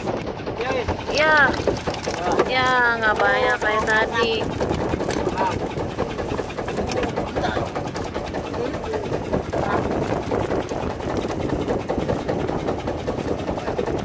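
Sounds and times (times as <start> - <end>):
boat engine rumbling: 0.0 - 14.0.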